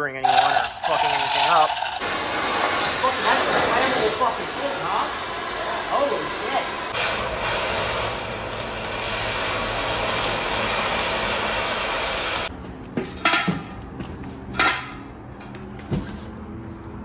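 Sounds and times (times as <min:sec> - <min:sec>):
angle grinder cutting steel: 0:00.2 - 0:02.2.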